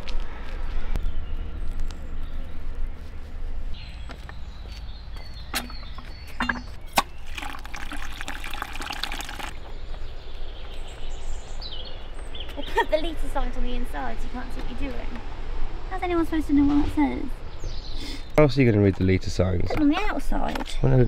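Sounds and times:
tap water running into bucket: 7.0s - 9.6s.

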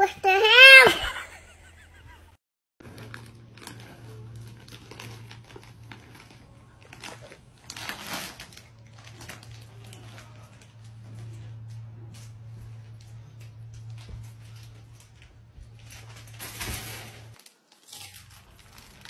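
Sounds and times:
plastic snack bag crinkling: 2.8s - 11.8s, 13.8s - 19.0s.

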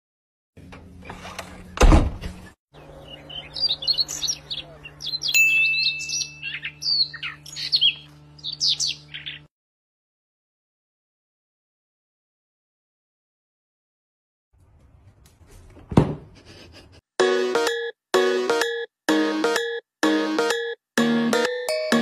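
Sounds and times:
birds chirping: 1.6s - 9.5s
loud thump: 15.9s - 16.3s.

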